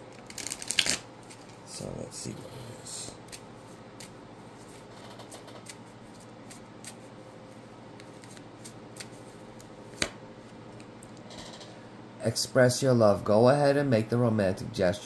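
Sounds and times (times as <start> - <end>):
cards being shuffled: 0.2 - 1.6, 4.0 - 7.2, 8.0 - 10.9.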